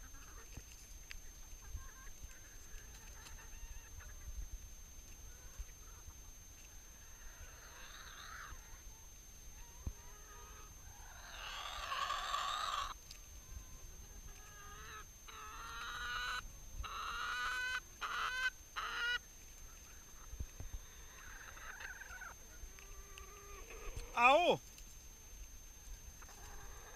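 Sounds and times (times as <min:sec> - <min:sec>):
chickens clucking: 0:00.0 - 0:26.9
chicken squawk: 0:07.0 - 0:13.0, 0:14.3 - 0:24.6.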